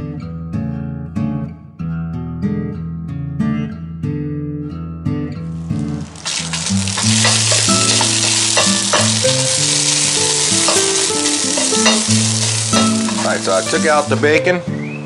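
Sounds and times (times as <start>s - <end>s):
acoustic guitar music: 0.0s - 15.0s
bacon sizzling: 5.4s - 14.4s.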